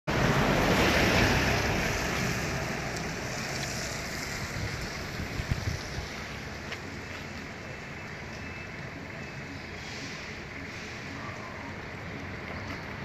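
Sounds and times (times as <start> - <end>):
wind buffeting microphone: 3.8 - 6.6.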